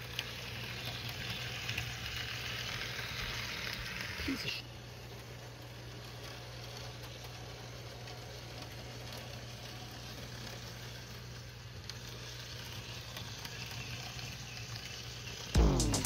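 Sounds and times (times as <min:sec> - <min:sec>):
model train whirring on track: 0:00.0 - 0:15.6
low hum: 0:15.6 - 0:16.0.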